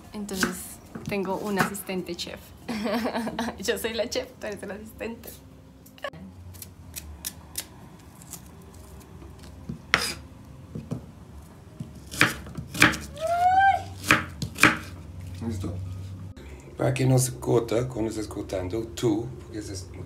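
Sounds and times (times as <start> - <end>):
knife chopping on wooden board: 0.4 - 1.8, 9.7 - 10.2, 11.8 - 13.1, 14.0 - 15.0.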